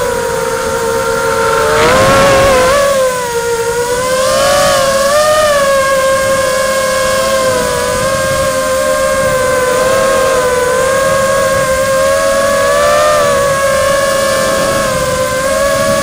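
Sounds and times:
drone motors and propellers whining: 0:00.0 - 0:16.0.

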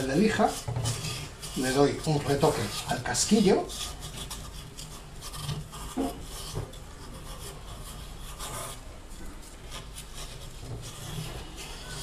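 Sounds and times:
sandpaper rasping on metal: 0:00.0 - 0:08.9, 0:09.7 - 0:12.0.

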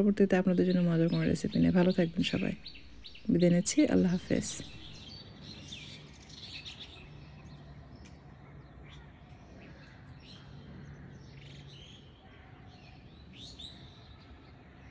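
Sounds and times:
low steady hum: 0:00.0 - 0:05.0
faint birds chirping: 0:00.0 - 0:14.9.

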